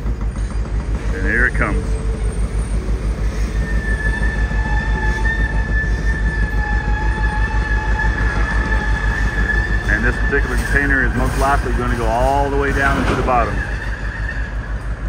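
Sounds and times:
low rhythmic throb: 0.0 - 10.1
high whine of hoist machinery: 0.0 - 15.0.

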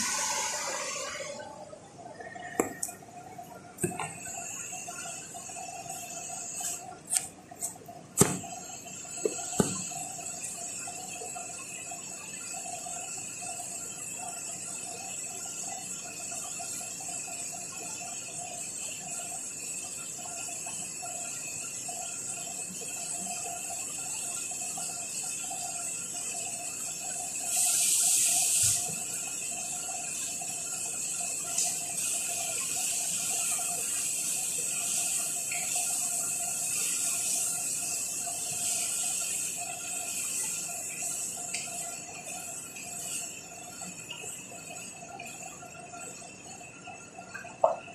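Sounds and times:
food sizzling in a pot: 0.0 - 1.4, 3.8 - 12.9, 21.3 - 46.0.

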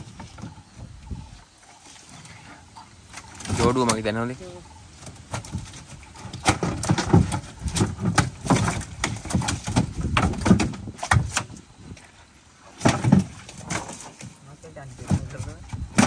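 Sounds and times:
knocks and slaps on wooden hull: 5.2 - 12.1, 12.7 - 16.0.

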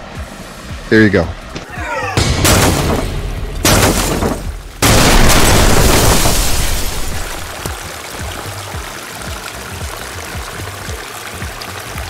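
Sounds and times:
booming cinematic hits: 2.2 - 7.5.

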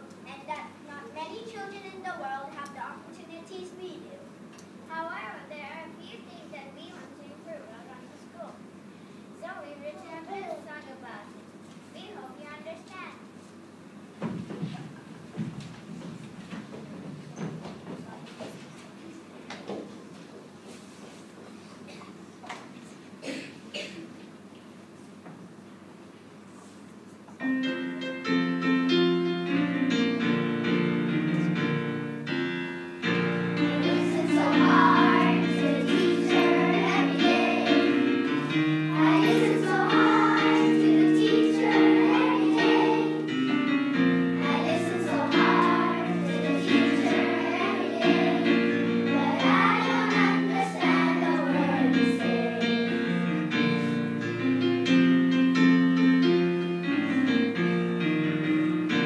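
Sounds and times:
piano accompaniment: 27.4 - 59.0
children's choir singing: 33.0 - 53.3.

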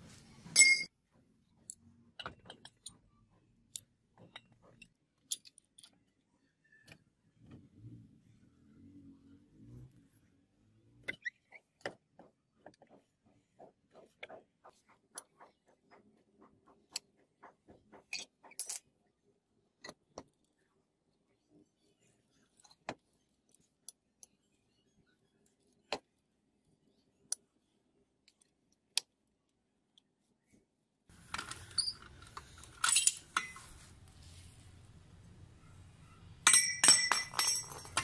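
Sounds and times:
metal clinks: 0.6 - 0.9, 36.4 - 38.0.

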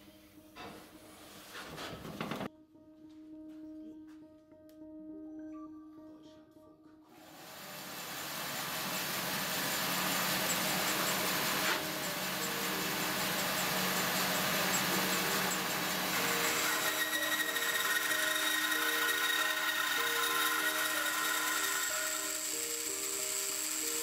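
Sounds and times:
bandsaw cutting wood: 7.4 - 24.0.

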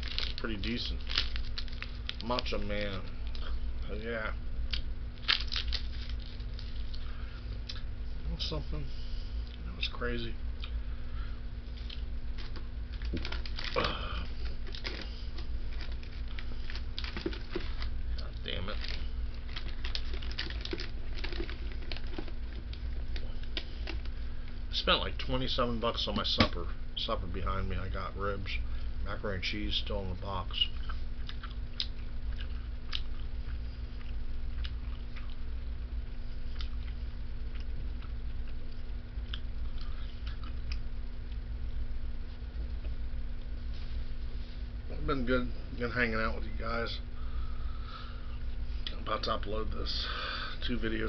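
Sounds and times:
steady low hum: 0.0 - 51.0
man chewing food: 18.9 - 24.5, 30.7 - 41.8.

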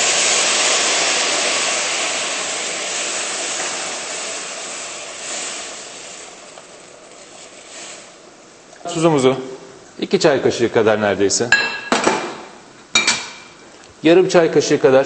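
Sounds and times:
water sizzling in hot pan: 0.0 - 8.4.

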